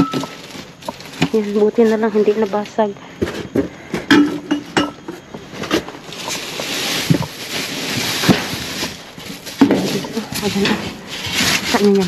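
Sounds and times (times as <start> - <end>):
ceramic items knocking and clinking: 0.0 - 0.4, 4.0 - 5.2
plastic bags rustling: 0.0 - 12.0.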